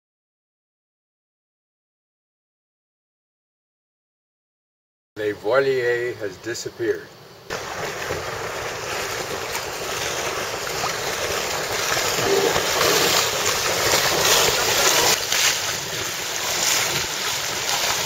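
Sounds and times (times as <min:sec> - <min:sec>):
waves splashing: 0:07.5 - 0:18.0.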